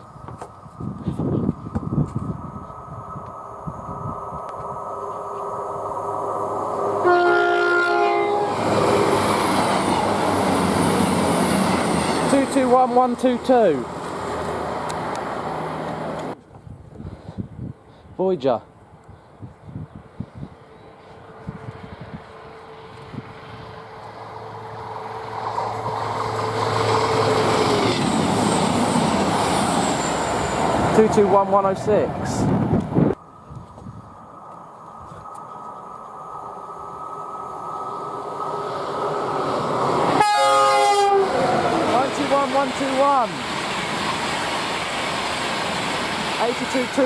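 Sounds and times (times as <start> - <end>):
train rushing past: 1.3 - 16.4, 20.5 - 47.0
train horn: 6.9 - 8.7, 40.1 - 41.6.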